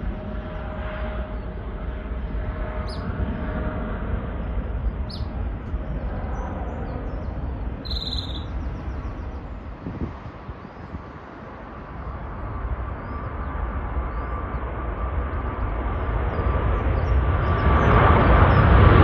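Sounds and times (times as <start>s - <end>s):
jet engines rumbling: 0.0s - 19.0s
bird chirps: 2.8s - 3.1s, 5.0s - 5.3s, 6.3s - 9.4s.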